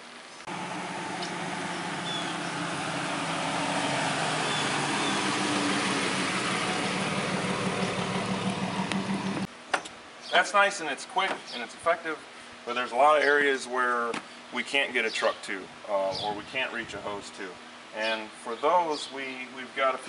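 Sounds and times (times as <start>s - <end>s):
pickup truck driving past: 0.5s - 9.5s.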